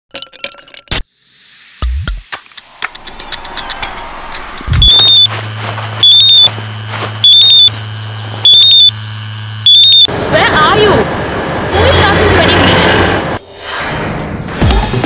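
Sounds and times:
mobile phone ringing: 4.7 - 5.4, 6.0 - 6.6, 7.2 - 9.0, 9.6 - 10.1.

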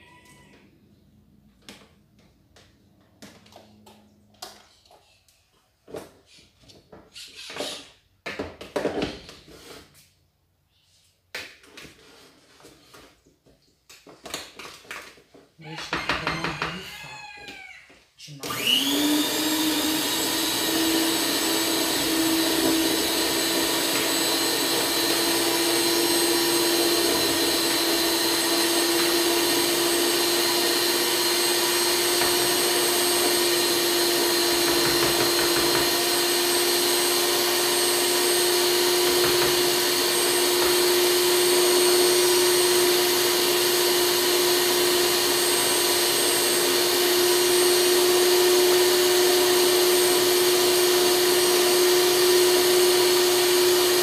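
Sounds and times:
electric stand mixer running: 18.5 - 54.0.

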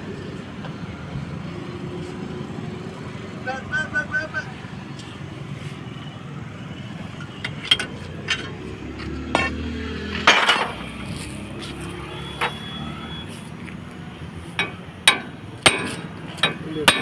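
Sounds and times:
metal tools clinking on metal: 7.3 - 8.6, 10.2 - 11.2, 14.6 - 17.0
metallic clatter: 9.3 - 11.3.

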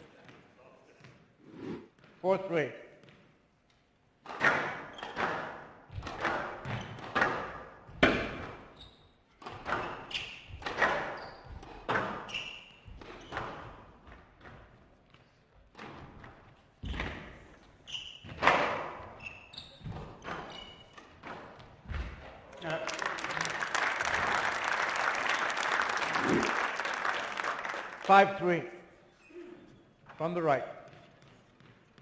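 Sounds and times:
shoes squeaking on court floor: 8.6 - 22.3, 29.0 - 32.0.

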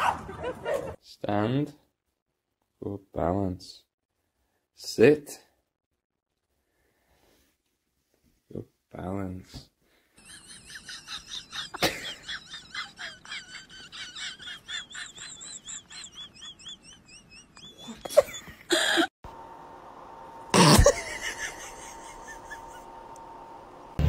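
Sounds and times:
steady hum: 19.3 - 24.0.

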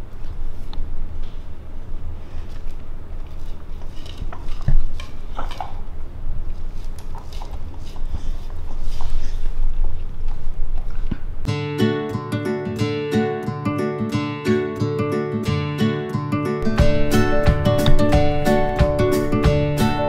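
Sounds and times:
acoustic guitar music: 11.4 - 20.0
steady low rumble: 16.6 - 20.0.

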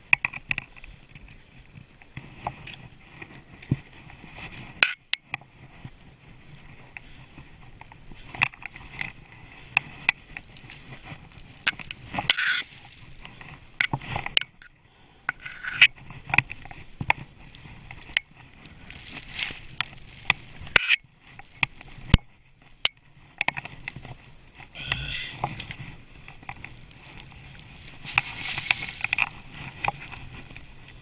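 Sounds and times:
skis hissing through powder snow: 10.4 - 13.8, 18.7 - 20.7, 24.0 - 31.0.

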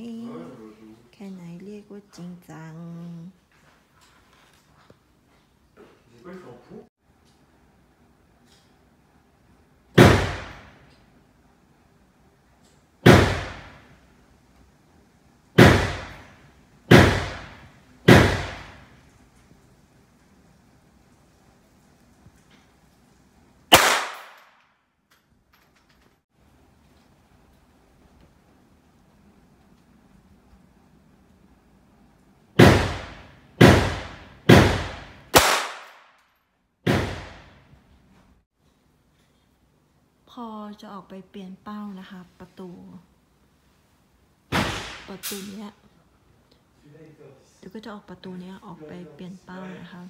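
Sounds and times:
pistol shots echoing indoors: 13.0 - 14.0, 15.6 - 19.0, 23.7 - 24.6, 32.6 - 36.2
pistol shots with echo: 23.7 - 24.5, 32.6 - 36.1.

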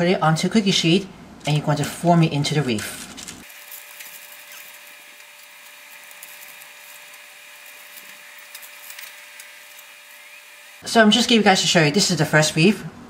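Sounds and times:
cornflake mixture and paper crackling: 1.5 - 10.3.

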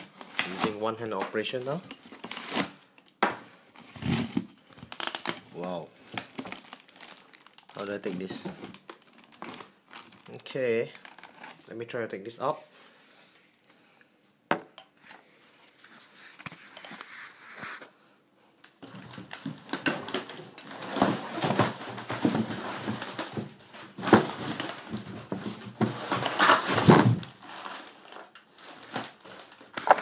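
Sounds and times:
styrofoam and cardboard squeaking: 3.8 - 5.6, 18.9 - 30.0.

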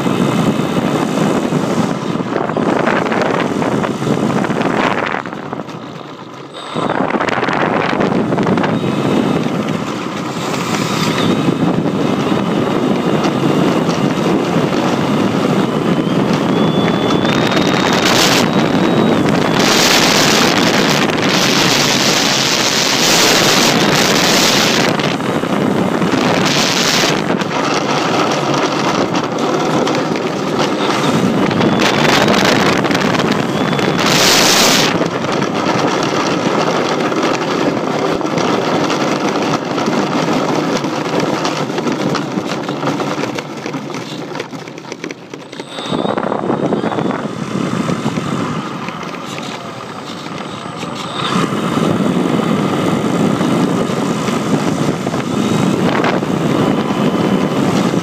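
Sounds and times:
model plane motor and propeller: 0.0 - 58.0
wind on microphone: 0.0 - 58.0.

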